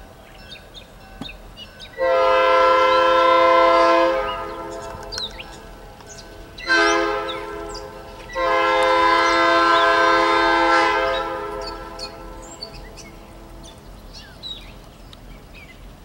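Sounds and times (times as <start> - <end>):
birds chirping: 0.0 - 15.9
locomotive air horn blasts: 2.0 - 5.2, 6.4 - 12.7.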